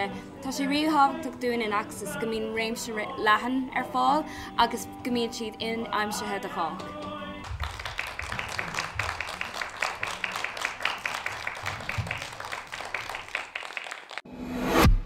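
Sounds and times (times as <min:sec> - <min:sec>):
children clapping: 0:06.8 - 0:14.3.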